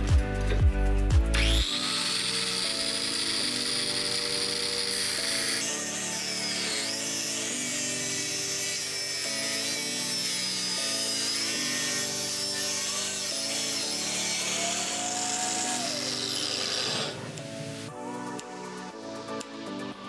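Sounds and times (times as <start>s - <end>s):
background music with chords: 0.0s - 20.0s
angle grinder cutting steel: 1.4s - 17.9s.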